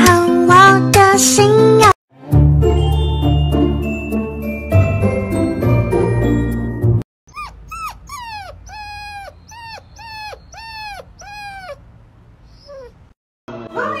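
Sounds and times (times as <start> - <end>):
chime jingle: 2.6 - 7.0
puppy yipping and whining: 7.3 - 13.2.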